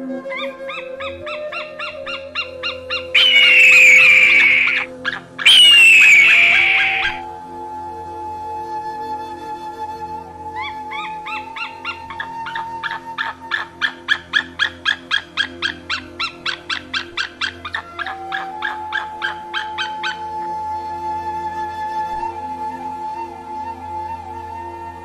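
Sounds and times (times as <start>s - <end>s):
soft background music: 0.0s - 25.0s
eagle yelping calls: 0.3s - 7.2s, 10.6s - 20.3s.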